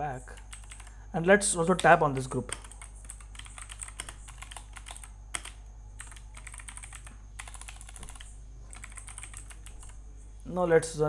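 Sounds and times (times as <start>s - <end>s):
faint low hum: 0.0s - 11.0s.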